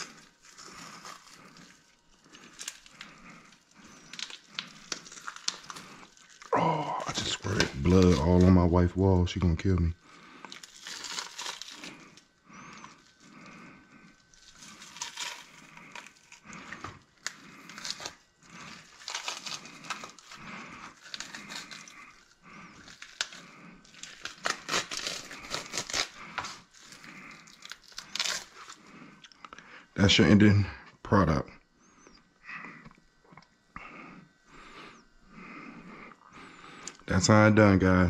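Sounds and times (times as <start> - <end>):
fish being torn apart: 0.0 - 8.5, 10.4 - 13.2, 14.1 - 28.8.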